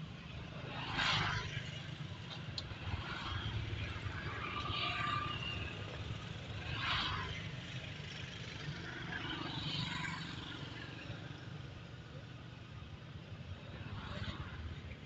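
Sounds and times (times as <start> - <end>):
vehicle engine rumbling: 0.0 - 15.0.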